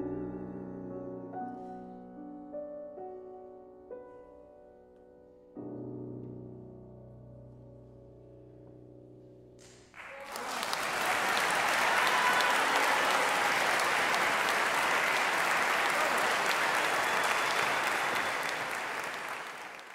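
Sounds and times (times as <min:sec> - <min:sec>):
audience applause: 0:10.0 - 0:19.9.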